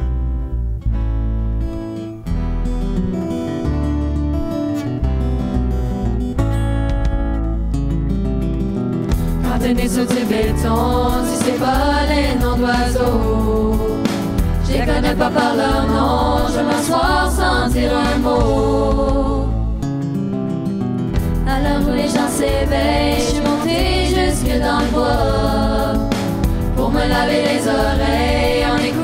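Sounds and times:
acoustic guitar: 0.0 - 29.0
electric bass: 0.0 - 29.0
keyboard: 0.0 - 29.0
drums: 6.4 - 7.7, 9.1 - 20.2, 21.1 - 29.0
young voices singing in harmony: 9.4 - 19.8, 21.5 - 29.0.

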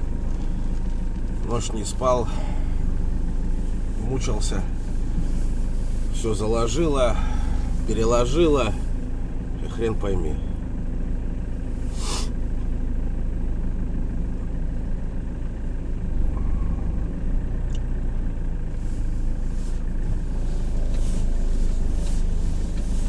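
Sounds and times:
engine and road noise in cab: 0.0 - 23.0
short hiss: 11.8 - 12.4.

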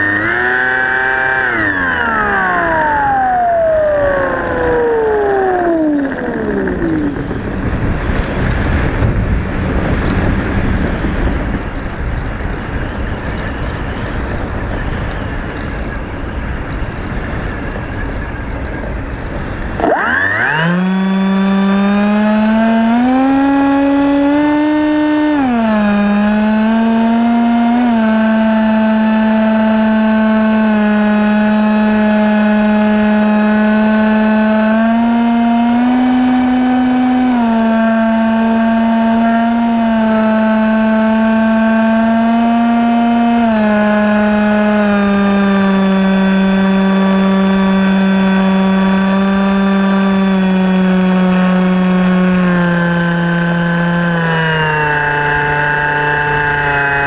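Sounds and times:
wind rushing over camera: 0.0 - 28.0
propeller motor whine: 0.0 - 57.0.

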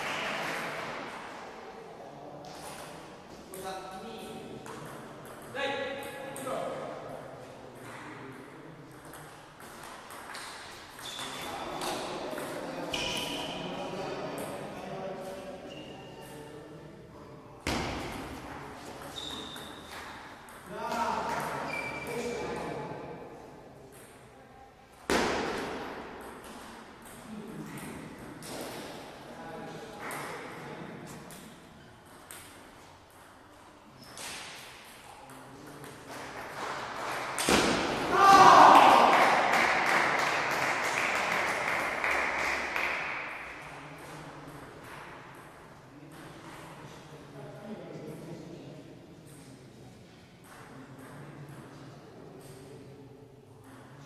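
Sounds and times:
table tennis ball hits: 17.7 - 22.2, 25.1 - 29.0, 35.8 - 43.6.

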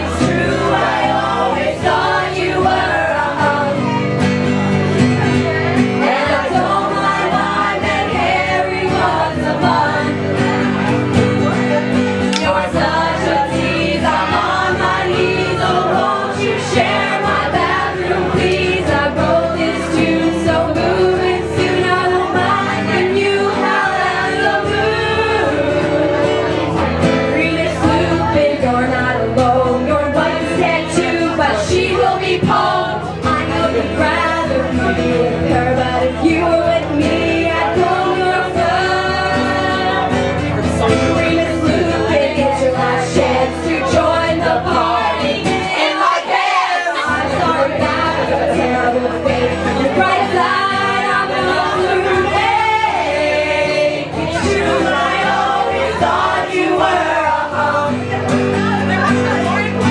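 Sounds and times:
woman singing: 0.0 - 4.3, 5.2 - 11.0, 12.4 - 59.9
guitar playing: 0.0 - 59.9.

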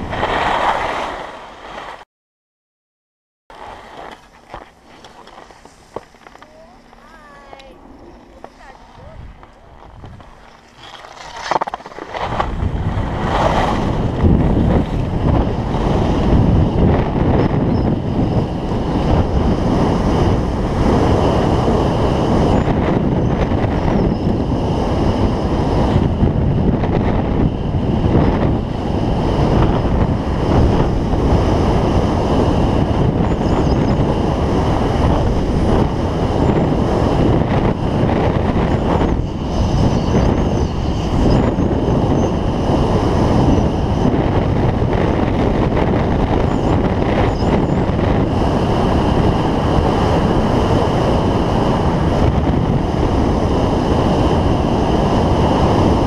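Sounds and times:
skis scraping on snow: 0.0 - 2.0, 3.5 - 16.2
wind rushing over microphone: 0.0 - 2.0, 3.5 - 56.0.

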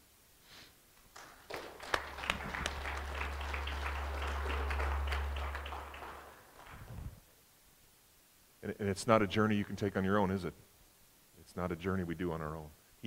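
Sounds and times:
congregation applauding: 1.1 - 7.2
low steady hum: 1.6 - 7.2.

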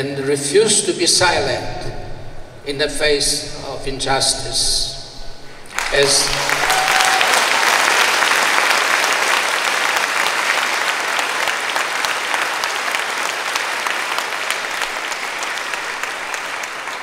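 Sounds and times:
audience applauding: 5.6 - 17.0.

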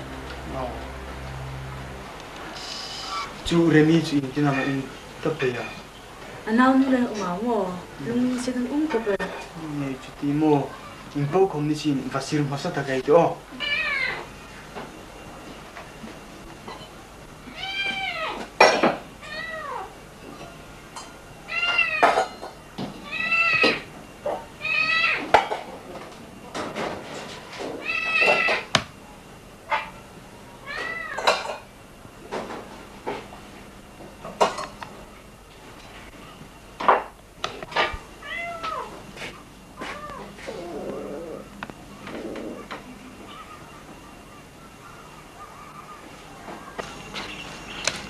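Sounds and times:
high-pitched mewing calls: 2.5 - 3.4, 27.8 - 28.7
cat meowing: 4.4 - 4.9, 13.5 - 14.3, 17.4 - 18.4, 19.2 - 19.9, 21.4 - 22.3, 23.0 - 23.9, 24.6 - 25.3, 27.8 - 28.8, 30.6 - 31.5, 38.2 - 39.0, 39.8 - 41.4
pots and dishes clinking: 20.2 - 22.6, 31.1 - 31.7, 34.2 - 34.8.

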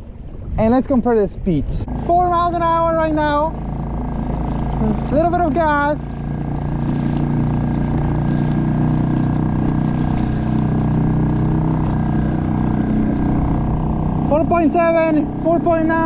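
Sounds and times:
outboard motor running: 1.6 - 16.0.

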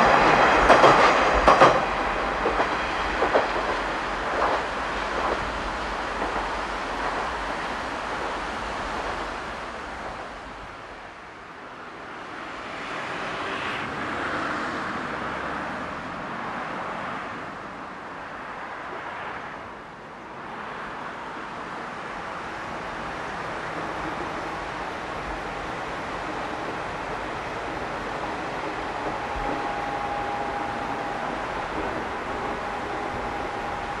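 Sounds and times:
road traffic passing: 11.6 - 34.0
river rushing over rapids: 21.1 - 34.0.

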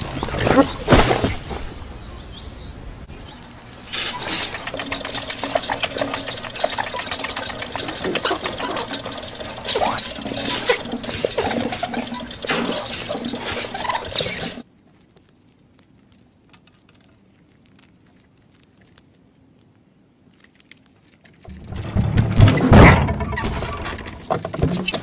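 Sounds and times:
hamster wheel spinning rattling: 3.9 - 14.6, 21.4 - 25.0.

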